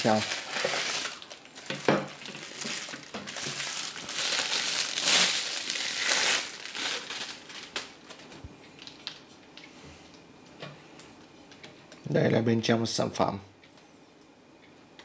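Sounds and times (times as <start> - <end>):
plastic wrap crinkling: 0.0 - 9.2.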